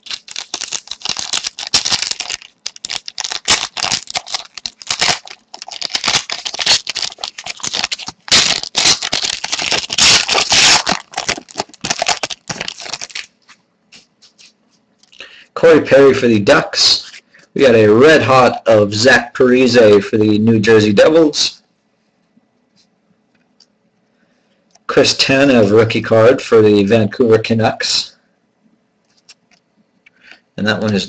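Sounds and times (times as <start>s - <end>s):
plastic sleeve crinkling: 0.0s - 15.2s.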